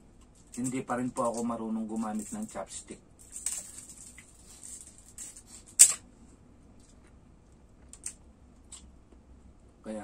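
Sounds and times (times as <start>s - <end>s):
paper rustle: 3.2s - 5.6s.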